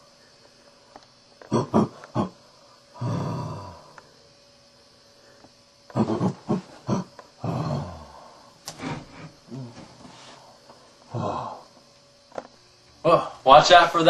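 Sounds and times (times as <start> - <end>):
gorilla-like grunts: 1.4 - 2.4, 3.0 - 3.9, 5.9 - 10.0, 11.1 - 11.7
gorilla-like roars: 3.0 - 3.9, 5.9 - 9.8, 11.1 - 11.6.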